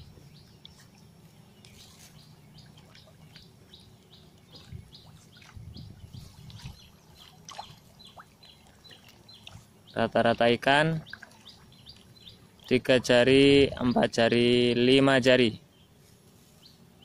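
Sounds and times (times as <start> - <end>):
small bird chirping: 0.0 - 10.0, 11.0 - 12.7.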